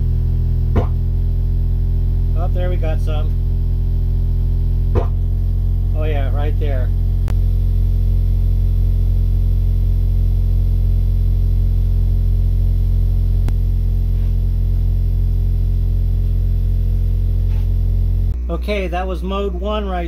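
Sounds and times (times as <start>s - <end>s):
low sine tone hum: 0.0s - 20.0s.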